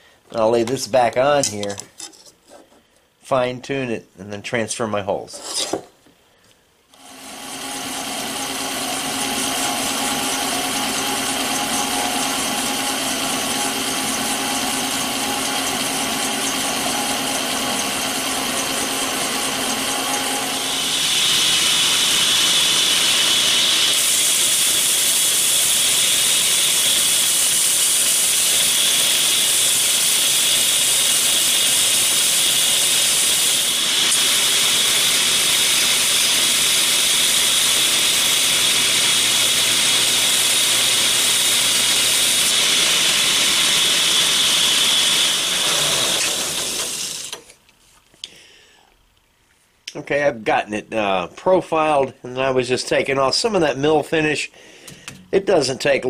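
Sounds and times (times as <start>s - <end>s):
bandsaw cutting metal: 7.0s - 47.6s
belt grinder grinding: 7.0s - 47.6s.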